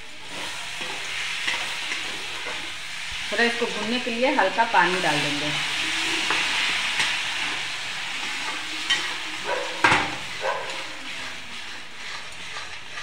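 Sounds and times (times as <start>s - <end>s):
masala sizzling in pan: 0.0s - 13.0s
metal spoon scraping pan: 0.3s - 2.7s, 5.7s - 13.0s.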